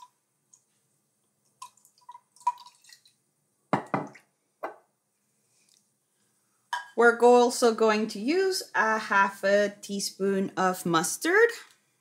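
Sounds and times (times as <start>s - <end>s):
liquid splashing into bowl: 1.4s - 3.2s
vinegar dripping into cup: 1.4s - 4.2s.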